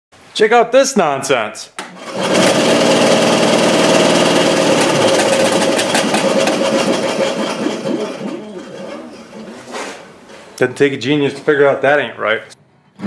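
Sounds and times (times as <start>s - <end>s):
bandsaw motor running: 2.0s - 9.7s
rapid clattering knock: 4.8s - 8.0s.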